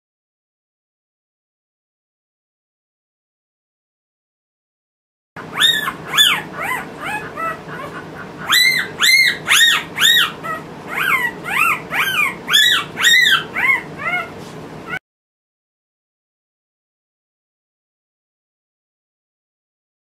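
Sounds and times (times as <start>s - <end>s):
puppy squealing: 5.4s - 15.0s.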